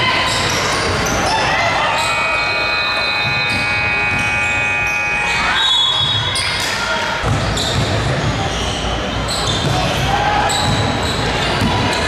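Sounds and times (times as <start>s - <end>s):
voices: 0.0s - 12.0s
scoreboard horn buzzing: 1.8s - 6.7s
basketball bouncing: 3.2s - 4.4s, 7.2s - 8.3s.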